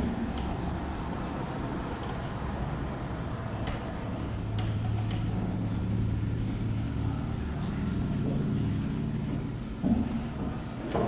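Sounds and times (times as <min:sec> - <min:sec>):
low steady hum: 0:00.0 - 0:11.0
cloth rubbing on whiteboard: 0:07.2 - 0:09.6.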